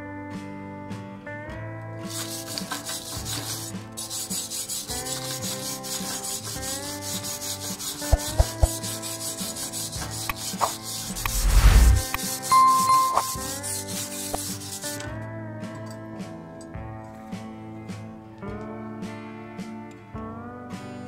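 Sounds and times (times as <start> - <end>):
wire brush scrubbing steel: 2.1 - 15.0
sharp knocks: 8.2 - 8.8.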